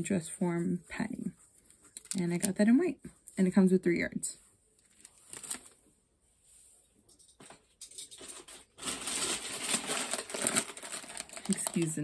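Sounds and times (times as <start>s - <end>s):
plastic packaging crinkling: 1.8s - 2.6s, 4.8s - 5.8s, 8.2s - 12.0s.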